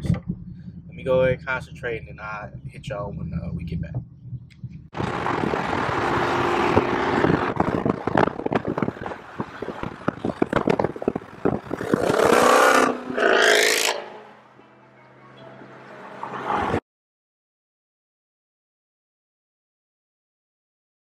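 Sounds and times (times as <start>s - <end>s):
car exhaust accelerating hard: 0.0s - 14.2s.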